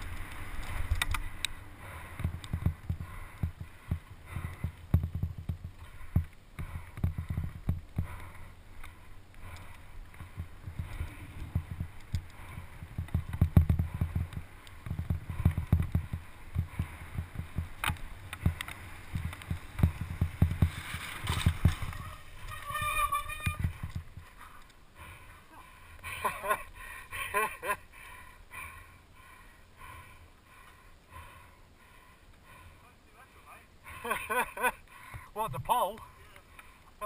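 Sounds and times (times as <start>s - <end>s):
bike rattling over bumps: 0.0s - 27.8s
wind buffeting microphone: 9.8s - 24.4s.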